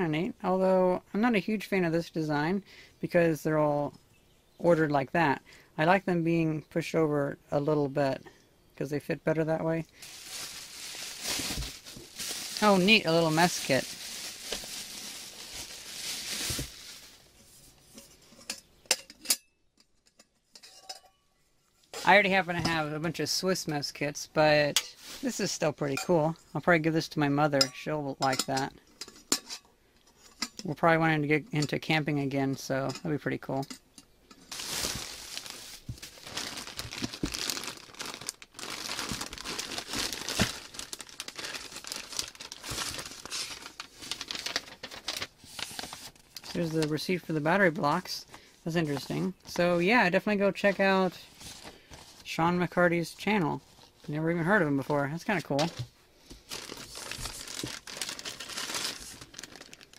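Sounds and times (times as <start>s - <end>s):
bubble wrap crinkling: 9.8s - 17.8s, 34.4s - 47.7s, 48.8s - 52.3s, 55.4s - 59.9s
metal pot clinks: 20.6s - 21.3s.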